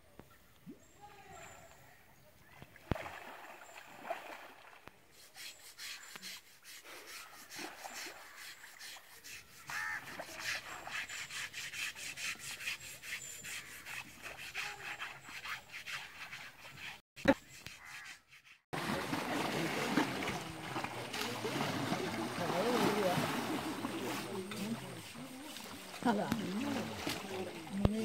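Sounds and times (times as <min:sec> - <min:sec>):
rough hand scrubbing: 0:05.1 - 0:28.0.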